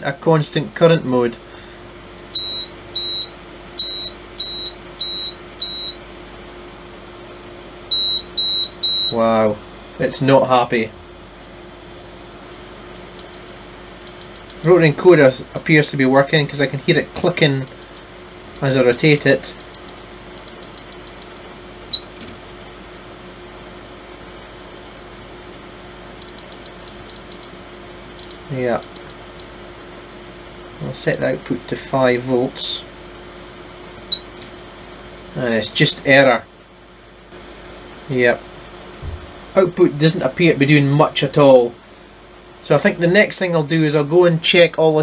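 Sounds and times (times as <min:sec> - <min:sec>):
cooling fan hum: 0:00.0 - 0:45.0
faint low hum: 0:02.3 - 0:06.0, 0:26.2 - 0:29.5
short high beeps: 0:02.4 - 0:06.0, 0:07.9 - 0:09.1
rotary encoder clicking: 0:13.2 - 0:14.6, 0:17.4 - 0:18.7, 0:19.5 - 0:21.4, 0:26.2 - 0:27.5, 0:28.2 - 0:29.5.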